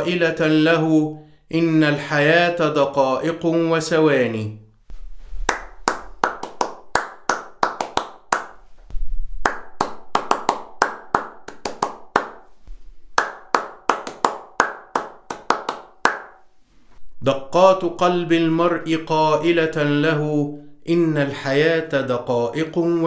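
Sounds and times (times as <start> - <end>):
hand claps with room echo: 5.4 - 16.5.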